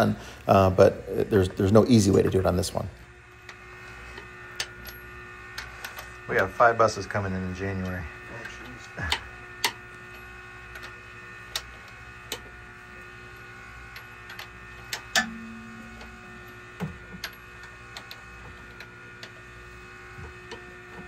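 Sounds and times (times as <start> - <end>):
steady hum: 0.0 - 21.0
metallic clicks of hand tools: 8.4 - 12.5, 13.9 - 19.4.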